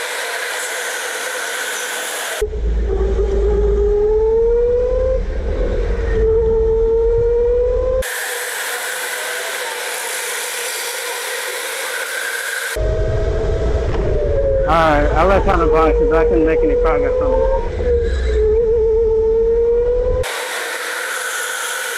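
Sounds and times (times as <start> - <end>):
electric kart motor whining: 0.0 - 15.2, 20.2 - 21.9
passing karts motor whine: 0.0 - 21.9
wind and vibration rumble: 2.4 - 8.0, 12.8 - 20.3.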